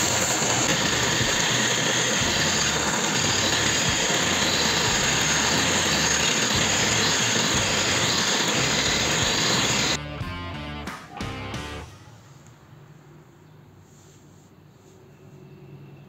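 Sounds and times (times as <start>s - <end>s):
file scraping spinning steel rod: 0.0s - 10.0s
spindle motor running: 0.0s - 10.0s.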